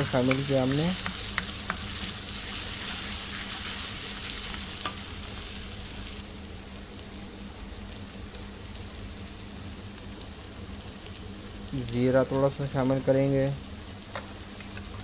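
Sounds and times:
masala sizzling in hot oil: 0.0s - 15.0s.

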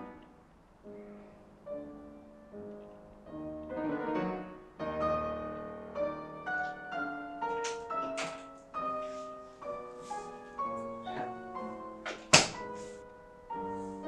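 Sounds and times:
gentle piano music: 0.0s - 14.0s
front door thunk: 12.1s - 12.6s.

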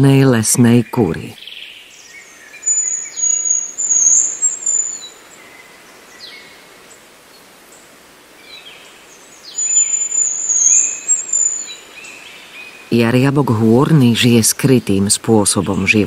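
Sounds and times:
faint bird chirps: 0.6s - 13.1s.

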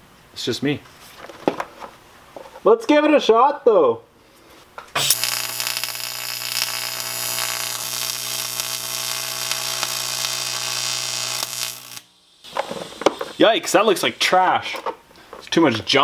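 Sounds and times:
welding arc buzzing and hissing: 5.0s - 14.4s.

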